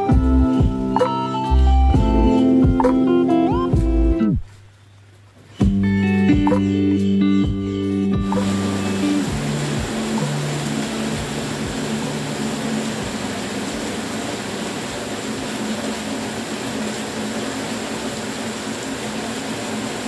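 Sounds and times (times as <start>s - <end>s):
low background music: 0.0s - 4.5s, 5.6s - 15.2s
steady hiss: 8.2s - 20.0s.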